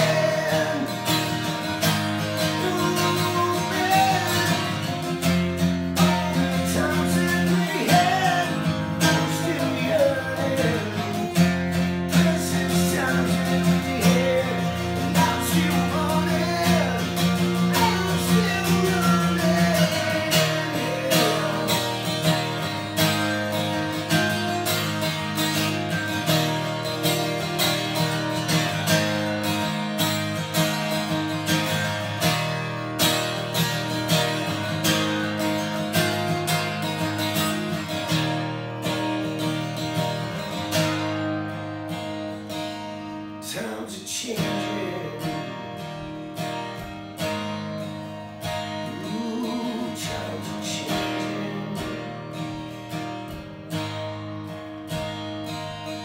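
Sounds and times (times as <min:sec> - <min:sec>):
man singing: 0:00.0 - 0:24.5, 0:43.4 - 0:46.1, 0:48.6 - 0:52.6
acoustic guitar strumming: 0:00.0 - 0:56.0.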